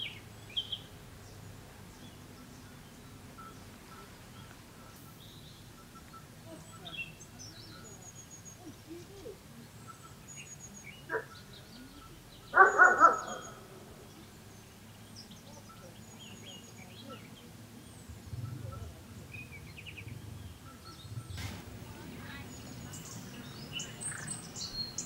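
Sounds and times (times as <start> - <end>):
small birds chirping: 0.0 - 25.0
dog barking: 11.1 - 11.3, 12.5 - 13.6.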